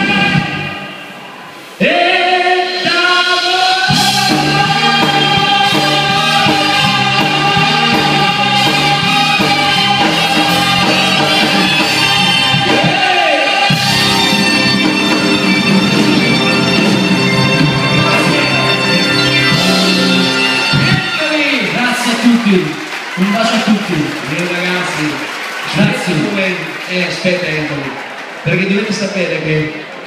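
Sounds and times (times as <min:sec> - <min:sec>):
person singing a long high note: 0:00.0 - 0:01.2, 0:01.8 - 0:14.8
backing band playing: 0:00.0 - 0:29.3.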